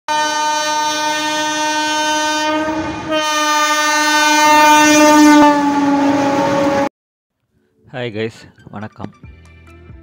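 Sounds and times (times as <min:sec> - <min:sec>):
train horn blasts: 0:00.1 - 0:06.9.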